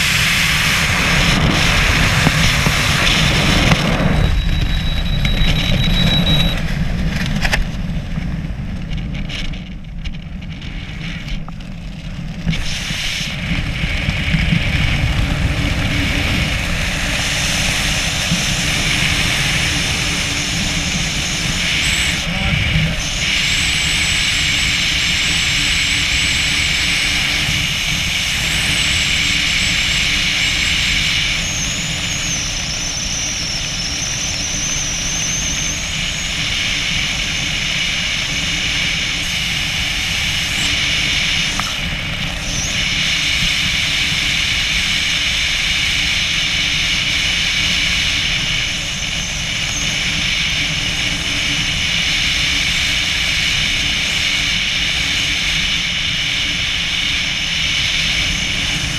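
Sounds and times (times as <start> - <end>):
wind buffeting microphone: 0.0 - 58.9
thin wavering whistle: 4.2 - 6.6.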